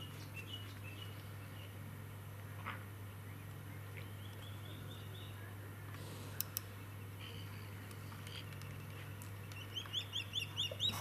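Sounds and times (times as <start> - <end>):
steady low hum: 0.0 - 11.0
bird chirping faintly: 3.2 - 11.0
sharp clicks: 6.4 - 6.7.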